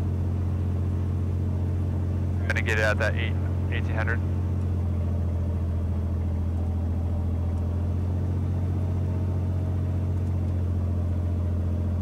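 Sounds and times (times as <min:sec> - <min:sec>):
aircraft engine droning: 0:00.0 - 0:12.0.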